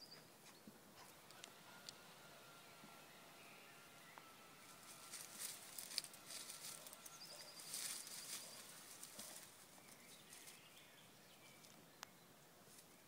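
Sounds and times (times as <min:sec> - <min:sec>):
dog rustling through dry leaves: 0:04.8 - 0:10.6.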